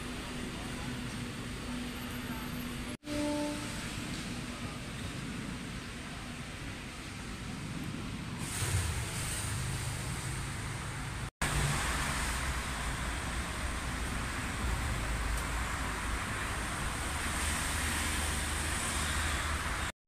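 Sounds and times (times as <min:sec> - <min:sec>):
road noise hiss: 0:00.0 - 0:19.9
street traffic rumble: 0:00.0 - 0:20.0.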